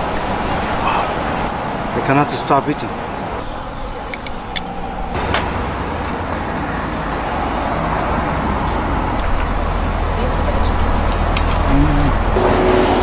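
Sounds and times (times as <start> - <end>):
road traffic noise: 0.0 - 13.0
low rumble: 3.4 - 13.0.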